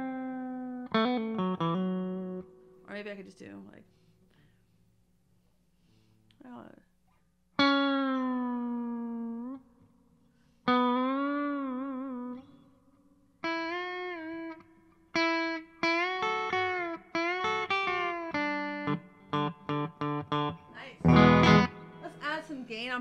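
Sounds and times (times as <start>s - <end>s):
electric guitar single notes: 0.0s - 2.8s, 7.6s - 9.9s, 10.7s - 23.0s.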